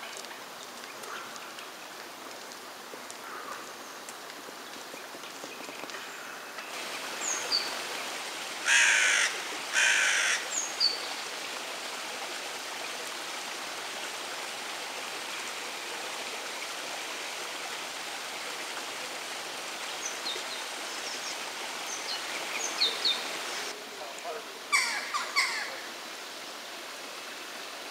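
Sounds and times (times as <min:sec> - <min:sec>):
outdoor background hiss: 0:00.0 - 0:27.9
harsh raspy bird calls: 0:08.6 - 0:10.7, 0:24.7 - 0:25.8.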